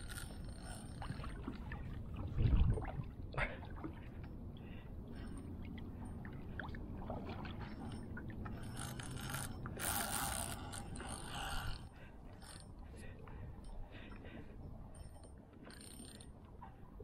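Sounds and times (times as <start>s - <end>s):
fishing reel whirring: 0.0s - 1.2s, 8.5s - 12.8s, 15.0s - 16.3s.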